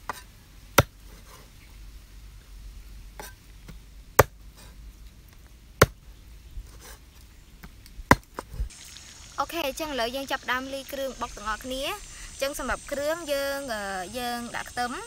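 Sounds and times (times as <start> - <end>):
cleaver chopping on wooden block: 0.8 - 1.0, 5.8 - 6.0, 8.1 - 8.5.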